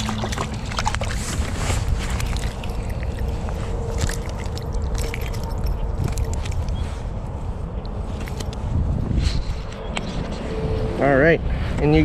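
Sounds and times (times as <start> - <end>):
fish splashing in water: 0.0 - 6.2
wind rumble on microphone: 0.0 - 12.0.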